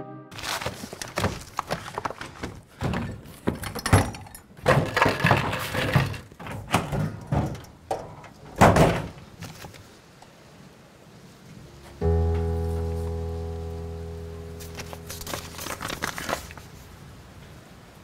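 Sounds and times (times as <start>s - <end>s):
objects clattering on shelf: 0.4s - 9.6s.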